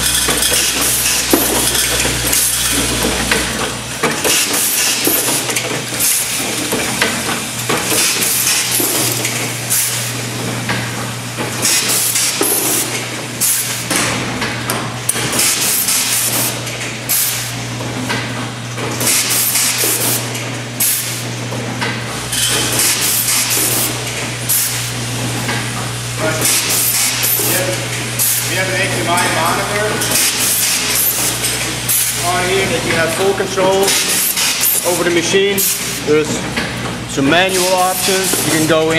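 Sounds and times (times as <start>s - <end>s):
machine low hum: 0.0s - 19.0s
pneumatic air release hisses: 17.1s - 17.5s, 20.8s - 21.2s.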